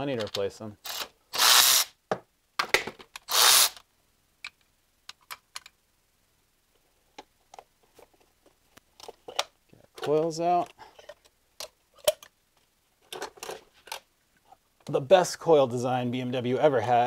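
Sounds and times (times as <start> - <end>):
electric ratchet spinning: 0.8 - 2.0, 3.2 - 3.8.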